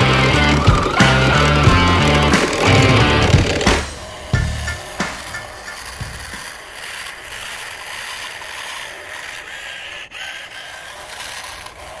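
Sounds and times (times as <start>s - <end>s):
toy truck rattling through sand: 0.0s - 12.0s.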